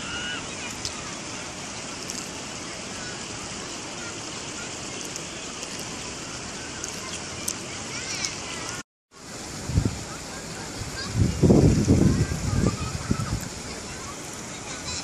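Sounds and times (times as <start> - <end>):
river flowing over stones: 0.0 - 15.0.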